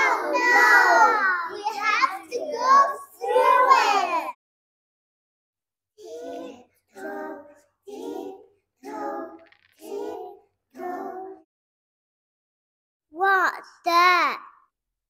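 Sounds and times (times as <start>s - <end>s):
child chanting sing-song syllables: 6.0s - 11.4s.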